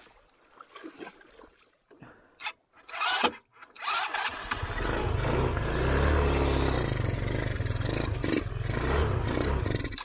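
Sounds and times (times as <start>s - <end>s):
off-road motorcycle engine running: 4.3s - 10.0s.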